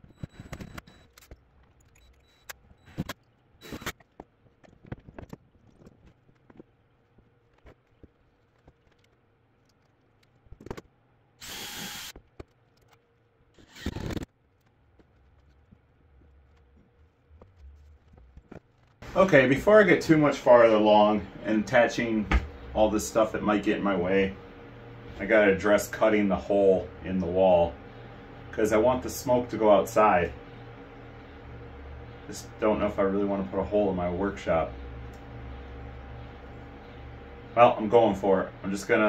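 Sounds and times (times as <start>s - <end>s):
cordless drill driving screws: 11.4s - 12.2s.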